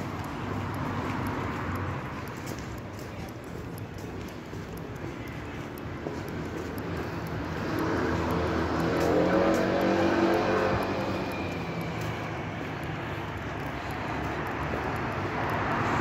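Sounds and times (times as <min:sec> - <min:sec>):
motor vehicle passing by: 0:07.6 - 0:12.7.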